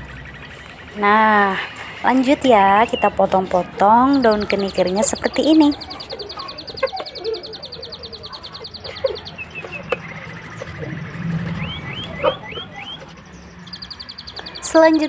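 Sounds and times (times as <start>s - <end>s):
bird trilling: 0.0s - 15.0s
birds chirping: 0.0s - 15.0s.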